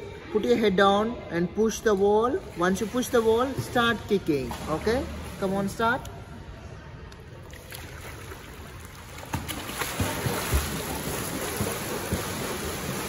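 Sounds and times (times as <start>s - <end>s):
water splashing: 7.4s - 13.0s
feet slapping water: 7.5s - 13.0s.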